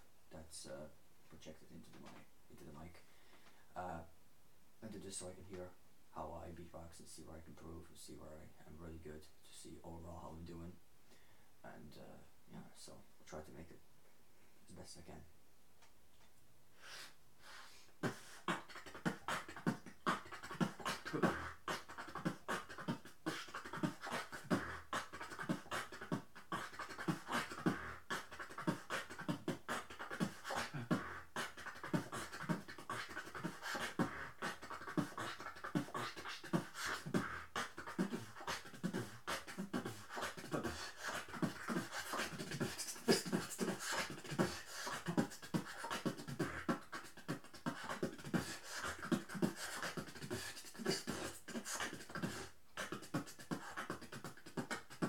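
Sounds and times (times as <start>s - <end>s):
beatbox into microphone: 16.9s - 55.0s.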